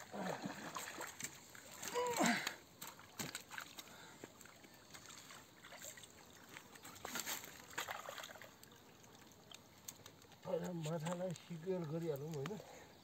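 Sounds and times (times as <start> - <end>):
lake water lapping: 0.0 - 9.9.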